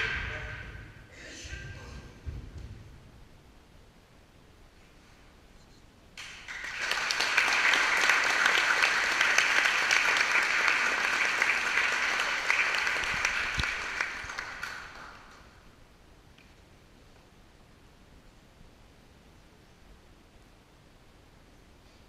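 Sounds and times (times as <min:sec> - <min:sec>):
audience applauding: 0:06.2 - 0:15.6.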